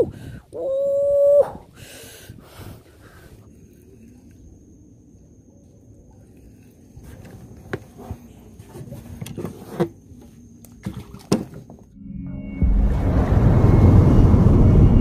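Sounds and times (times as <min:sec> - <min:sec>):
low background rumble: 0:11.9 - 0:15.0
rumbling music intro: 0:12.0 - 0:15.0.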